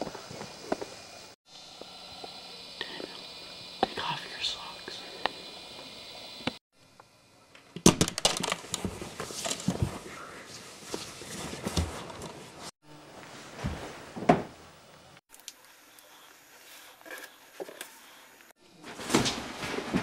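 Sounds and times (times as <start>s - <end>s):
rustling: 8.5s - 14.2s.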